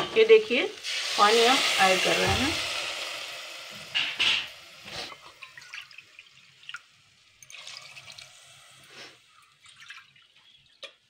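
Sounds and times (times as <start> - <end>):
hiss from hot pot: 0.7 - 5.4, 8.0 - 9.4
water pouring and splashing: 0.8 - 3.0, 3.7 - 11.0
water dripping and trickling: 5.1 - 8.3, 9.3 - 11.0.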